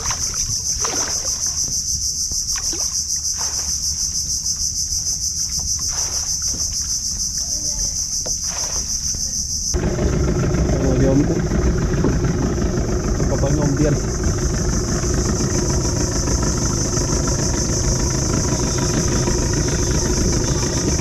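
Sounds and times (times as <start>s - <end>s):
insects buzzing: 0.0s - 21.0s
engine running: 9.6s - 21.0s.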